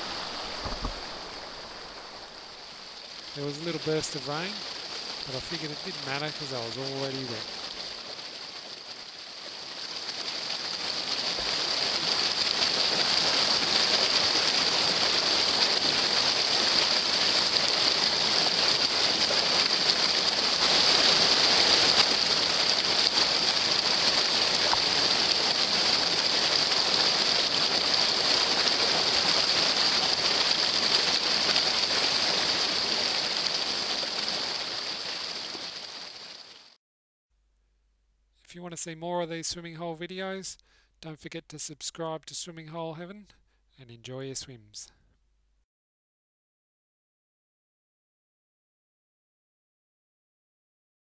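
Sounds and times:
creek water rushing over rocks: 0.0 - 36.8.

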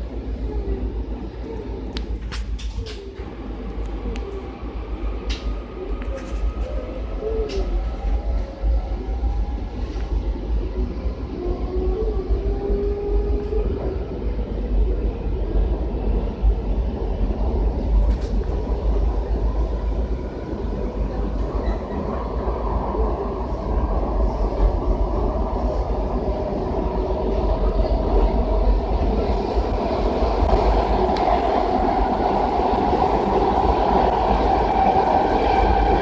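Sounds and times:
train wheels clickety-clack: 1.5 - 4.4, 17.8 - 18.6.

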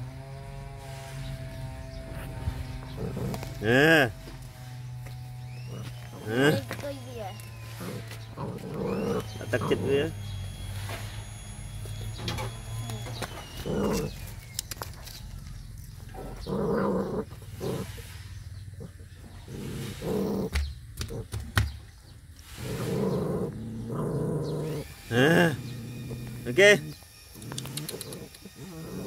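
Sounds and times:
puppy growling: 2.4 - 4.4, 5.4 - 10.4, 12.0 - 14.6, 15.4 - 21.4, 22.5 - 29.0
clicks from eating: 27.4 - 28.4.

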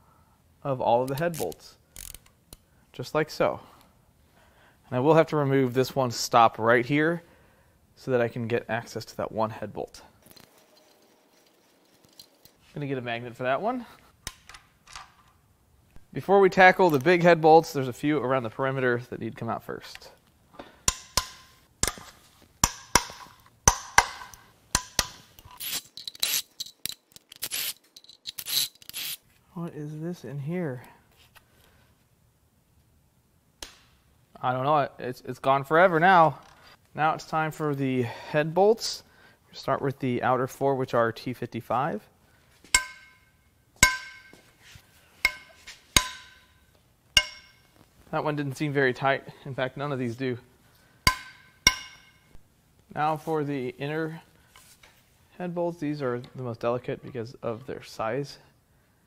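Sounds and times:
ratchet clinking on bolts: 45.2 - 46.5, 47.2 - 47.7.

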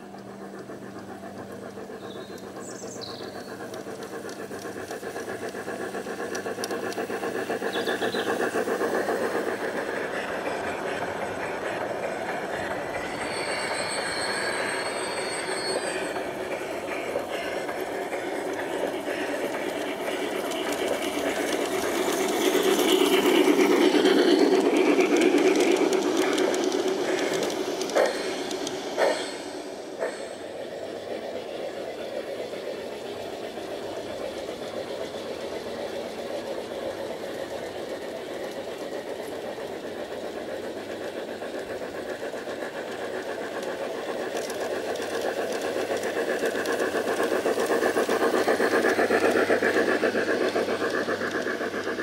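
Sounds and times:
model train wheels clicking: 0.0 - 52.0
motors humming: 0.0 - 52.0
sharp clicks: 3.3 - 10.0, 15.8 - 30.2.

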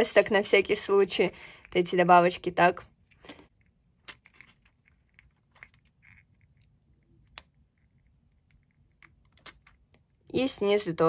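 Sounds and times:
sticky tape crackling and clicking: 3.2 - 10.0.

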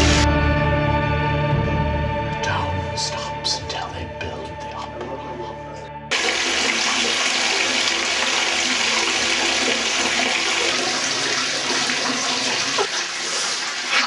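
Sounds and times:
tap water running into bathtub: 6.1 - 14.0.

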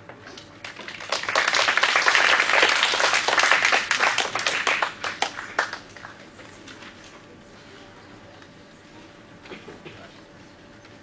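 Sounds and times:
audience applauding: 0.6 - 6.2.

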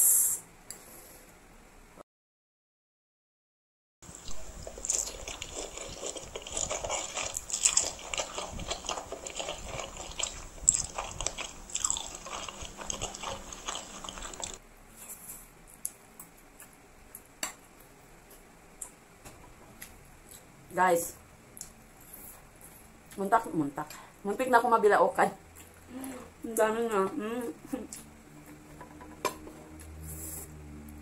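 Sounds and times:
wet chewing and smacking: 4.2 - 14.6.

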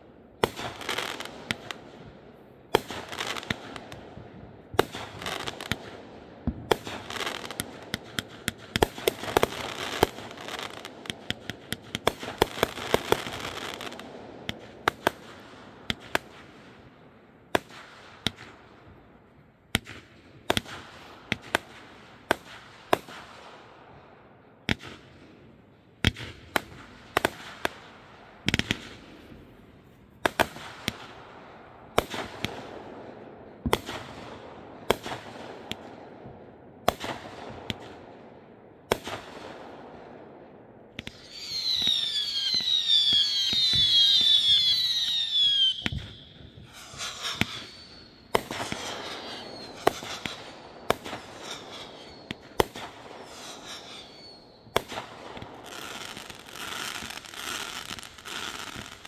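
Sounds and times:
fireworks banging and crackling: 0.0 - 59.0
firework launch reports: 41.0 - 55.2
firework hiss: 41.1 - 59.0.

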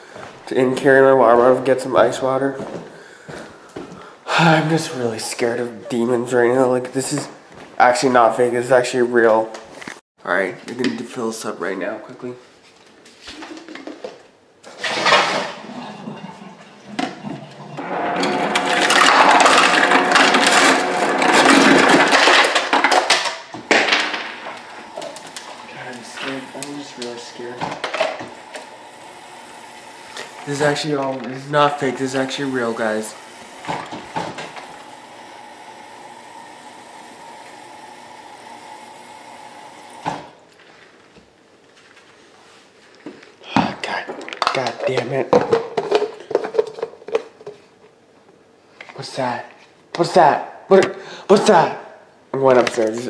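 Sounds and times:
water dispenser rushing with motor hum: 17.8 - 22.8, 23.6 - 40.4
dispenser clunk: 29.7 - 35.0.

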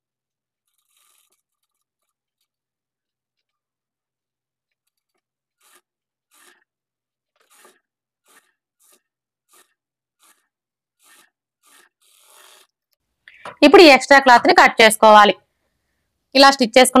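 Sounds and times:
cloth rubbing: 0.5 - 3.9, 4.7 - 6.8, 7.4 - 12.8.

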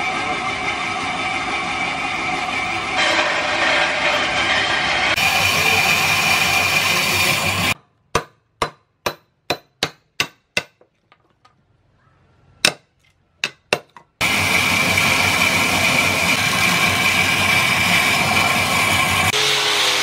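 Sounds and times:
band saw cutting wood: 0.0 - 7.8, 14.2 - 20.0.

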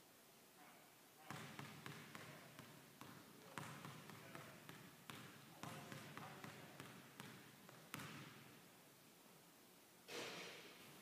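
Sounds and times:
basketball bouncing on wooden floor: 1.3 - 8.5.

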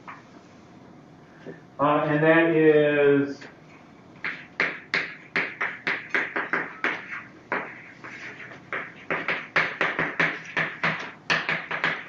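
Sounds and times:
chalk tapping and scratching on blackboard: 4.2 - 12.0.

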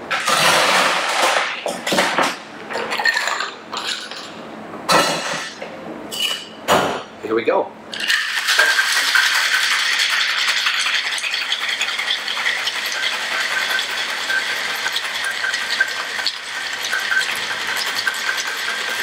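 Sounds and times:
ice rattling in cocktail shaker: 7.9 - 19.0.

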